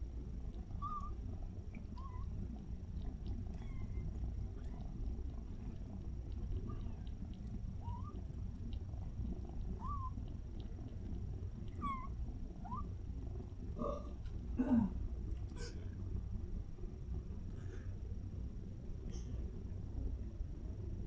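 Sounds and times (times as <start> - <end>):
steady low rumble: 0.0 - 21.0
kittens mewing: 11.7 - 12.9.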